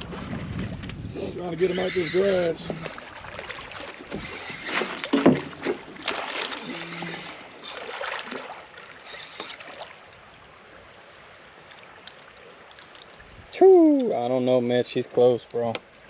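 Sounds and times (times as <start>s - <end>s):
water splashing from thrashing fish: 2.2s - 10.1s.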